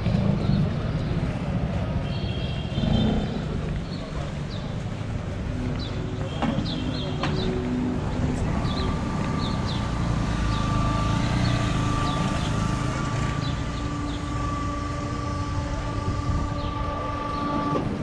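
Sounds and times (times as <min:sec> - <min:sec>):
vehicle rumble: 0:00.0 - 0:18.0
steady high whine: 0:07.7 - 0:18.0.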